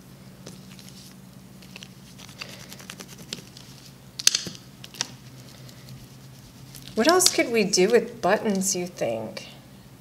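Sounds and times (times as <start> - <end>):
faint low hum: 0.0 - 10.0
paper rustling and tapping: 0.4 - 5.2.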